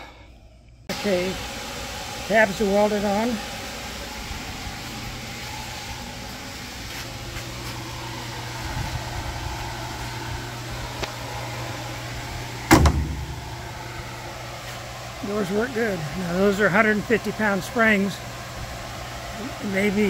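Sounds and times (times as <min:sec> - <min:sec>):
steady low hum: 0:00.0 - 0:20.0
car door shutting thump: 0:12.7 - 0:13.4.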